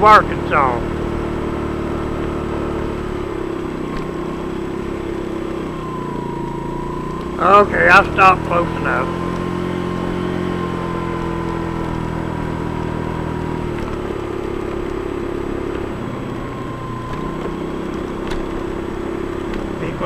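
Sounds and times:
scooter engine idling: 0.0s - 20.0s.

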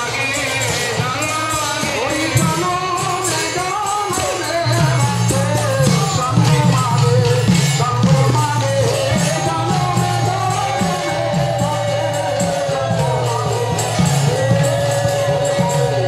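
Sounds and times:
hand cymbals ringing: 0.0s - 16.0s
group chanting: 8.0s - 16.0s.

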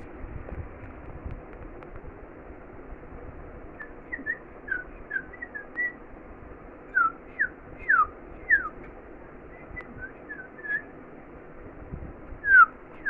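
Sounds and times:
lovebirds chirping: 3.8s - 6.1s, 6.9s - 11.0s.

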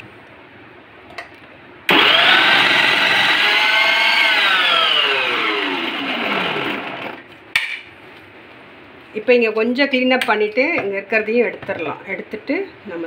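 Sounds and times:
food processor motor whining: 1.9s - 7.3s.

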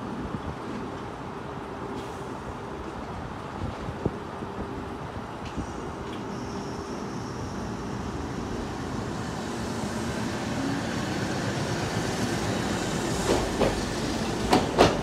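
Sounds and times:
tram motor and gear noise: 0.1s - 15.0s
tram wheels knocking on rail joint: 13.1s - 15.0s.

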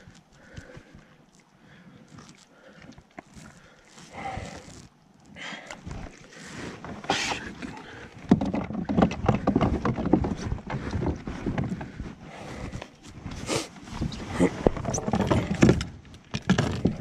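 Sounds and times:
fish handling rustles: 0.0s - 15.6s
knocks and rattles against kayak hull: 6.6s - 12.8s, 14.5s - 17.0s.

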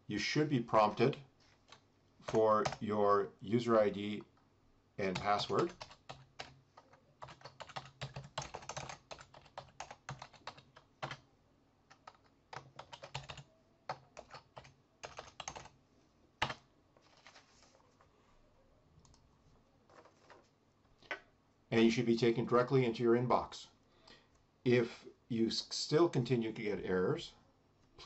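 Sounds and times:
typing on computer keyboard: 5.2s - 11.2s, 11.9s - 15.7s, 16.4s - 17.3s.

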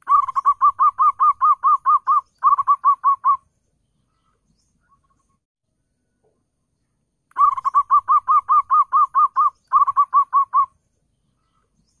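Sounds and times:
dove cooing: 0.0s - 3.4s, 7.4s - 10.7s.

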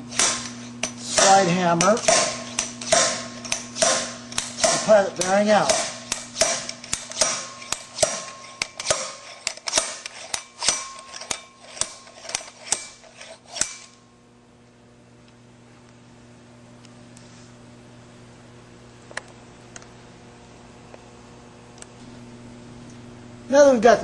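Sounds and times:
low steady hum: 0.0s - 24.0s
slide hammer metal clacks: 0.1s - 14.0s.

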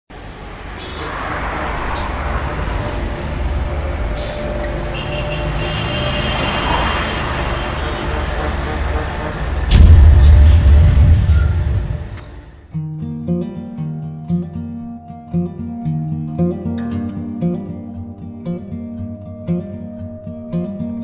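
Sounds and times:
cars and buses passing: 0.1s - 12.8s
loud low rumble: 9.1s - 12.5s.

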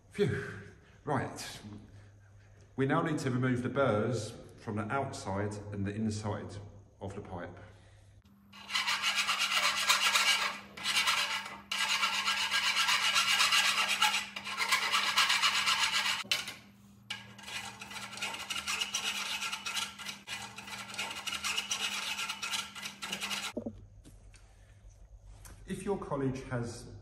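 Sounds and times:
files rasping on steel pipe: 8.5s - 23.6s.

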